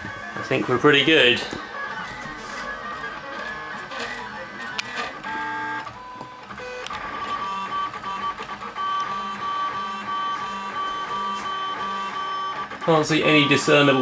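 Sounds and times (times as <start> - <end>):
stepper motors whining: 0.0 - 14.0
sharp clicks: 3.0 - 7.0.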